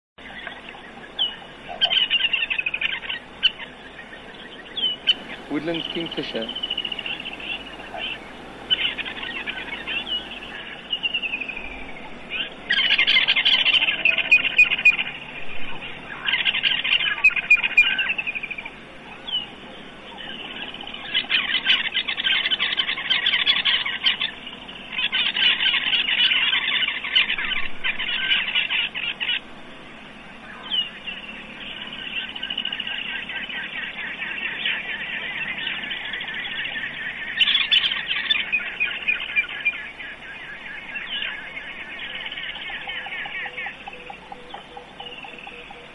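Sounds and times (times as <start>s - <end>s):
kingfisher trilling call: 5.1s - 10.6s.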